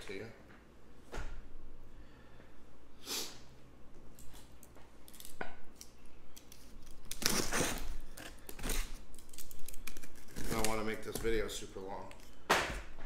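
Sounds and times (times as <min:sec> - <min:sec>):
box cutter slicing tape: 0:07.0 - 0:11.2.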